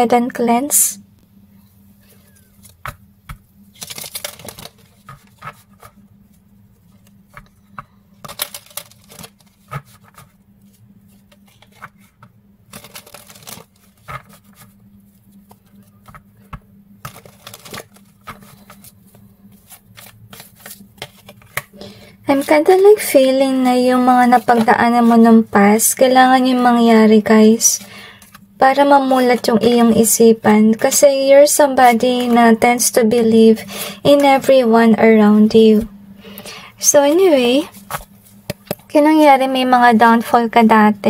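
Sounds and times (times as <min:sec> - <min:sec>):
faint steady hum: 0:00.0 - 0:41.0
cards shuffling and riffling: 0:02.1 - 0:06.0, 0:06.9 - 0:22.6, 0:37.7 - 0:38.9.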